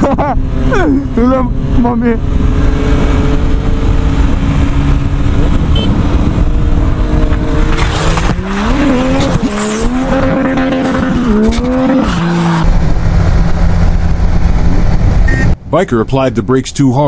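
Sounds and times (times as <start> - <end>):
motorcycle engine revving: 0.0 - 15.4
wind rush: 0.4 - 15.7.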